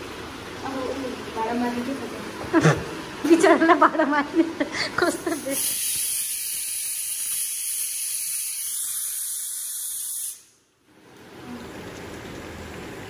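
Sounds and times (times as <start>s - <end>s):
food sizzling in a wok: 0.0s - 13.0s
pressure cooker steam hissing: 5.0s - 10.6s.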